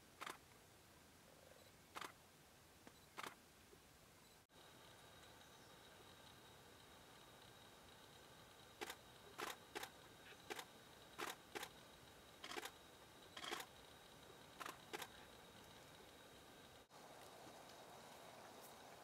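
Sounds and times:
faint high-pitched hum: 0.0s - 19.0s
camera shutter clicks: 3.2s - 3.4s, 8.8s - 9.9s, 10.5s - 11.7s, 12.4s - 12.7s, 13.4s - 13.7s.

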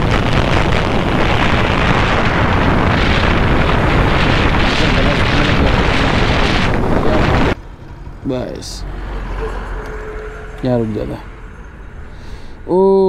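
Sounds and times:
crackling wind noise on microphone: 0.0s - 8.2s.

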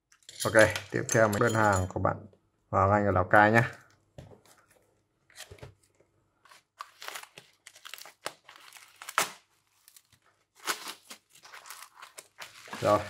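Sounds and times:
packaging crinkling and tearing: 6.5s - 13.0s.

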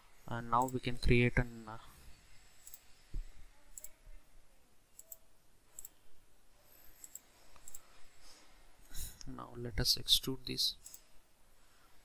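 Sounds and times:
computer mouse clicking: 2.6s - 2.9s, 3.7s - 4.0s, 4.9s - 6.0s, 7.0s - 7.9s, 10.8s - 11.1s.

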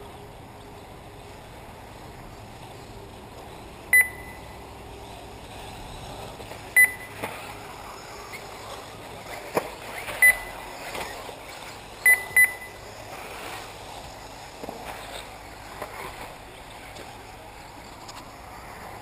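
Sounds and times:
loud electronic beeps: 4.0s - 4.6s, 6.8s - 7.2s, 12.0s - 12.8s.

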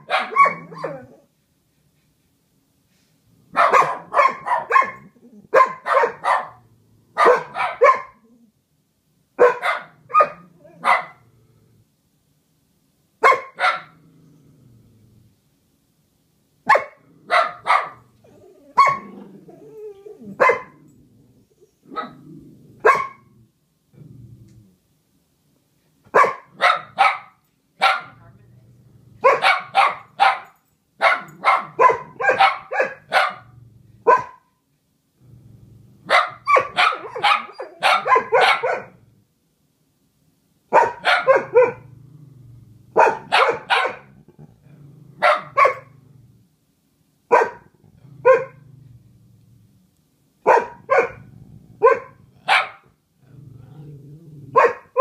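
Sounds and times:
dogs barking: 0.0s - 1.1s, 3.5s - 6.6s, 7.2s - 8.2s, 9.4s - 11.2s, 13.2s - 14.0s, 16.7s - 18.1s, 18.8s - 19.1s, 20.4s - 20.8s, 22.8s - 23.3s, 26.1s - 28.1s, 29.2s - 34.4s, 36.1s - 39.0s, 40.7s - 41.9s, 43.0s - 44.1s, 45.2s - 46.0s, 47.3s - 48.6s, 50.5s - 52.9s, 54.5s - 55.0s
dogs grumbling low: 13.9s - 15.4s, 18.2s - 24.8s, 35.2s - 36.1s, 41.8s - 43.0s, 44.1s - 46.5s, 47.8s - 49.8s, 53.2s - 54.6s.

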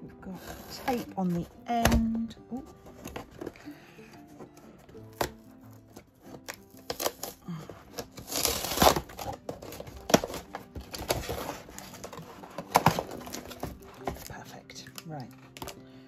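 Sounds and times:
cardboard tearing and rustling: 0.2s - 14.4s, 15.3s - 15.8s
cutter slicing packing tape: 6.3s - 13.7s.

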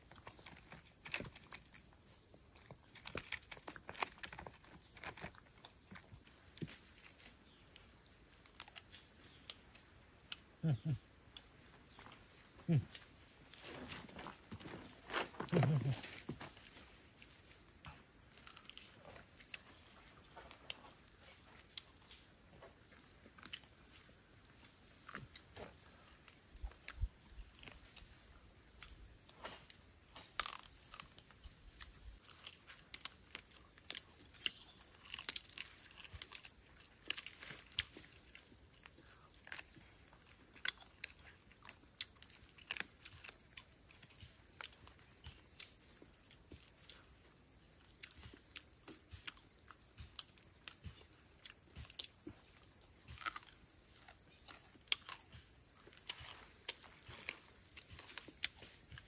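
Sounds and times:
soft crunches and clicks: 0.0s - 10.5s
high insect drone: 0.0s - 59.0s.

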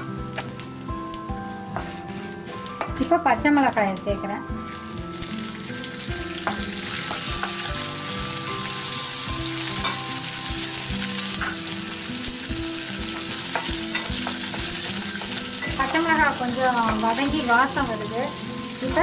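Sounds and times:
chillies sizzling in hot oil: 0.0s - 19.0s
spatula tapping and scraping pan: 13.1s - 16.1s.

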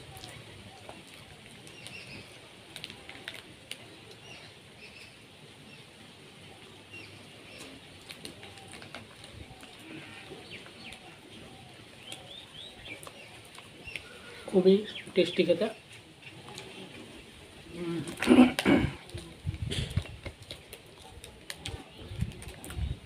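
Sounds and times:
small birds chirping: 0.0s - 18.2s.

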